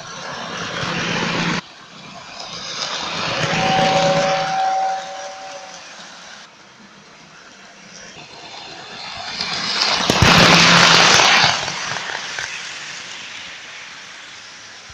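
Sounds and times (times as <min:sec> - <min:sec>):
toy train passing: 0:00.0 - 0:14.9.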